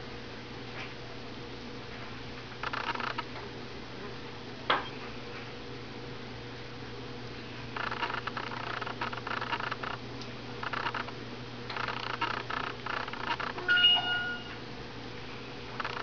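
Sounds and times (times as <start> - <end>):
puppies suckling: 7.8 - 10.0, 11.7 - 13.6.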